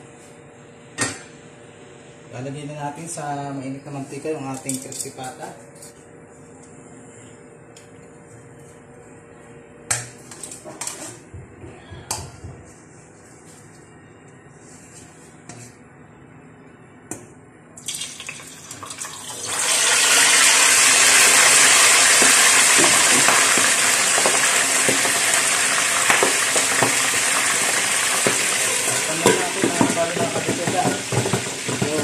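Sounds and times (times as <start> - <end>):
oil sizzling and bubbling: 17.8 - 32.0.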